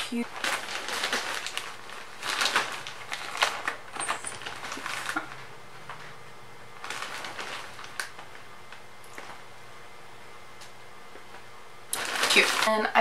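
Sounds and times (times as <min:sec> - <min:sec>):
plastic bag crinkling: 0:00.0 - 0:06.1, 0:06.8 - 0:09.4, 0:11.9 - 0:13.0.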